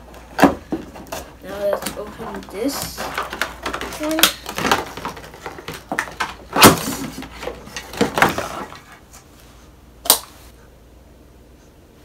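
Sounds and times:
plastic crinkling and clattering: 0.0 - 9.1
sharp plastic knocks: 0.3 - 8.6.

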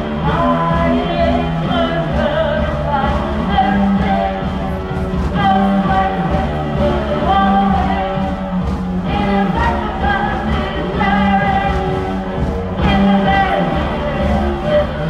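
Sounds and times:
person singing: 0.0 - 15.0.

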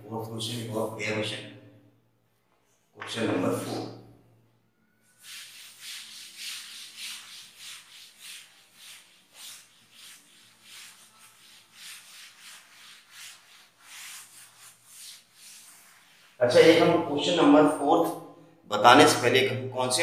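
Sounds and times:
duster wiping chalkboard: 5.0 - 17.2.

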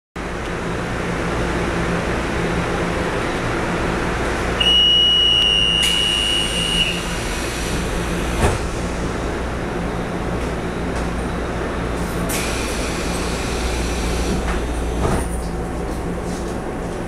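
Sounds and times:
train cabin hum: 2.7 - 17.0
high-pitched warning buzzer: 4.6 - 7.2.

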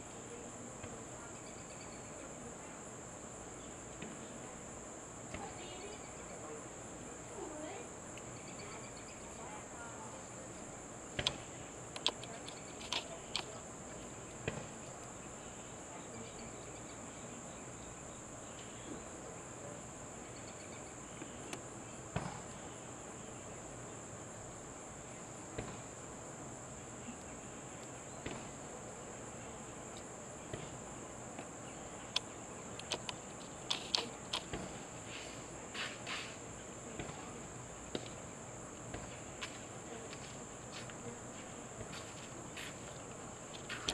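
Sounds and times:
insect chorus drone: 0.0 - 43.9
faint clicks and taps: 11.2 - 13.6, 32.1 - 34.7.

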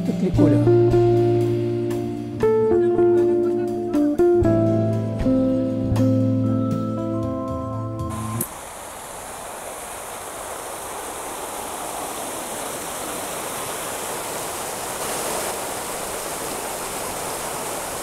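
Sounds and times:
fountain water splashing into basin: 8.4 - 18.0.

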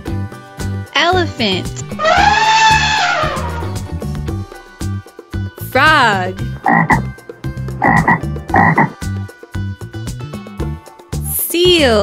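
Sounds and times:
elephant trumpeting: 1.9 - 4.1
music with steady beat: 3.2 - 11.3.

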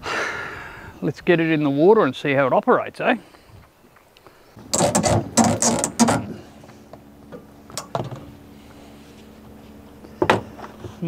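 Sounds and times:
low mechanical hum: 3.0 - 11.0
loud clacks and knocks: 4.7 - 6.3.

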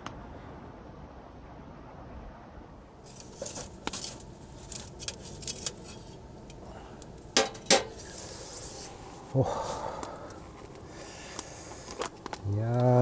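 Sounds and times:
low steady hiss: 0.0 - 13.0
small objects clicking and rustling: 3.0 - 6.6, 10.0 - 13.0.

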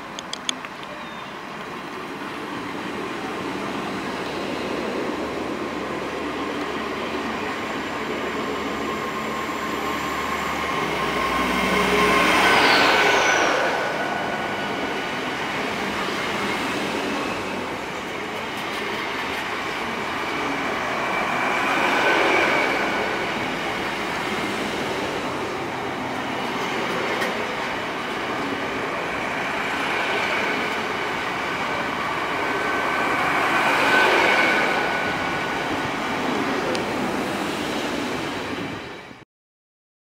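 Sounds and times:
passenger train rumbling past: 0.0 - 39.2
high squealing wheels: 6.1 - 36.7.

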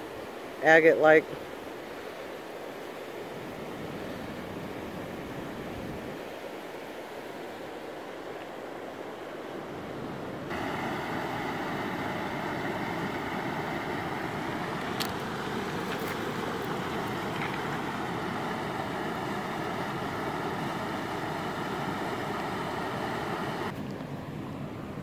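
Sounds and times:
creek water rushing over gravel: 10.5 - 23.8.

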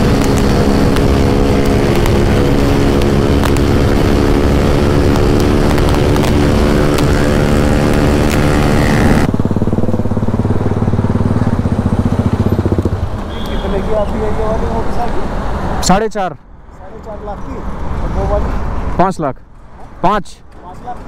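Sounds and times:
low pulsing engine note: 0.0 - 14.4
motorcycle engine running: 0.0 - 14.6.

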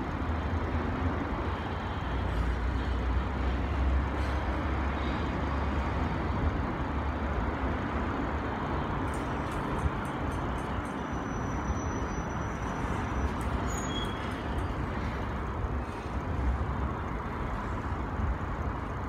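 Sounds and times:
train wheels rumbling on bridge: 7.7 - 19.0
thin squeal: 10.9 - 14.8.

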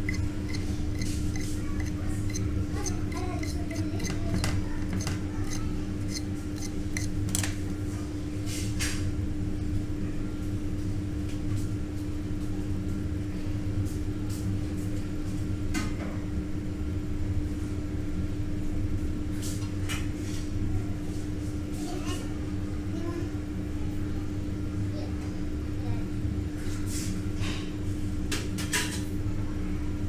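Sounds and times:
steady low hum: 0.0 - 8.4.

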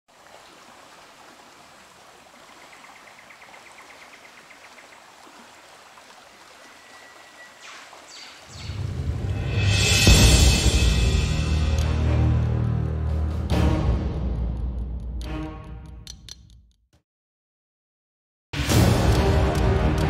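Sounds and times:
flowing water hiss: 0.1 - 8.8
fast trilling bird call: 6.6 - 8.8
music with deep drum hits: 8.8 - 15.6.

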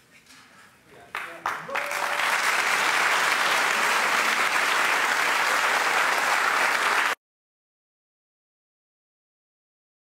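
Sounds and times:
audience applauding: 1.2 - 7.2.

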